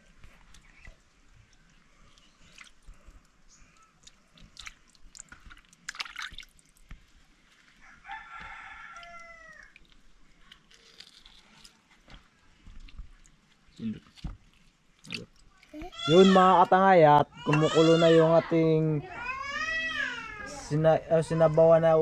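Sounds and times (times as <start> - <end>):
water sloshing and splashing: 0.0 - 7.8, 9.7 - 15.9
rooster crowing: 7.8 - 9.8.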